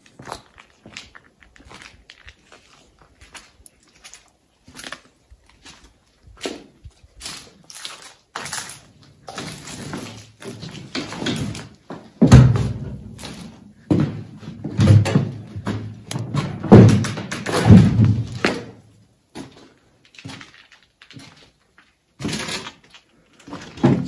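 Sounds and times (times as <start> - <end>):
ringing knocks and thuds: 12.2 - 13.3.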